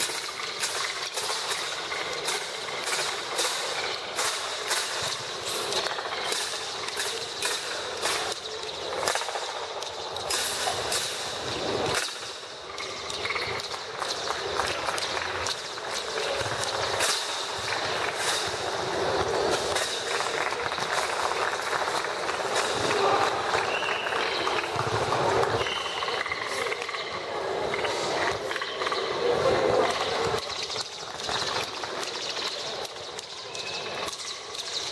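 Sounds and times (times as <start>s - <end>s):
sharp slaps and clicks: 0.0s - 18.6s
crowd chattering: 0.0s - 34.9s.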